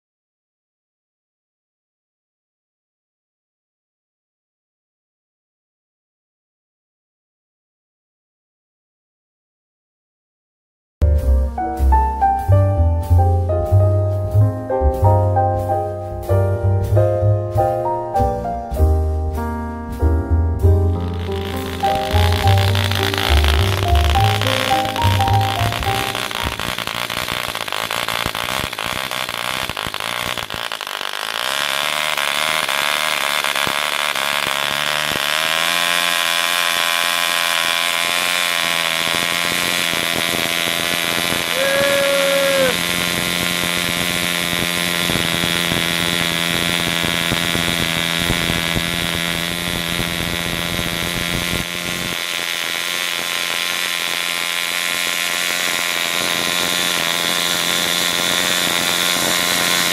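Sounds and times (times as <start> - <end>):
model airplane engine droning: 21.0 - 59.9.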